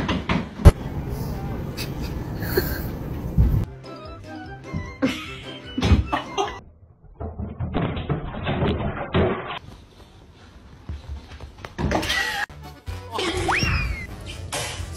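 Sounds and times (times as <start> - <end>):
knocks and thumps: 7.2 - 9.6.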